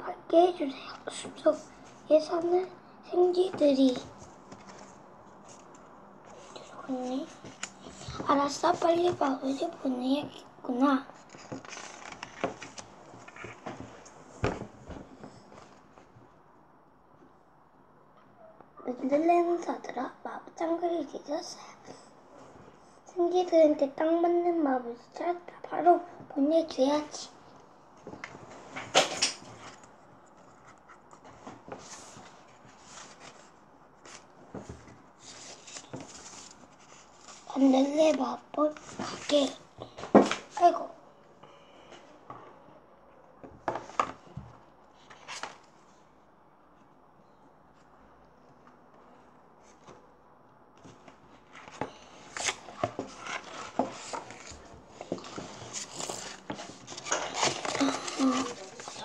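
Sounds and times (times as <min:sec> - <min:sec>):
book pages flipping: 0:03.5 - 0:09.7, 0:11.1 - 0:16.1, 0:28.0 - 0:40.7, 0:45.0 - 0:45.9, 0:50.8 - 0:59.0
paper rustling and scraping: 0:11.2 - 0:14.0, 0:28.6 - 0:38.0, 0:51.4 - 0:59.0.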